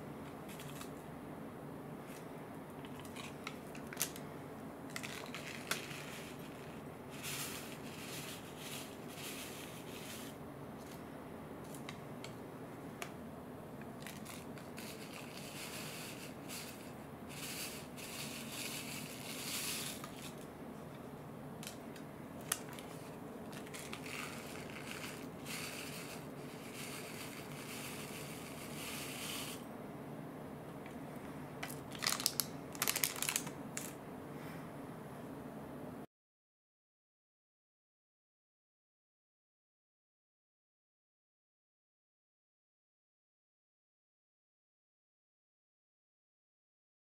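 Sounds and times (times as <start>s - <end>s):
foil sachets crinkling: 4.9s - 10.4s, 14.0s - 20.4s, 22.4s - 28.8s, 31.6s - 34.0s.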